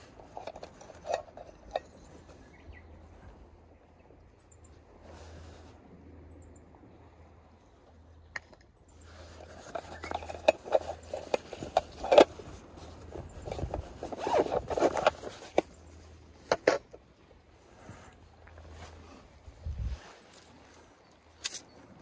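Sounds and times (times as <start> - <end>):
metal lid scraping and clicking: 0.0 - 2.4, 9.3 - 15.7, 16.4 - 17.0
fabric rustling and rubbing: 9.1 - 16.5, 17.6 - 20.9.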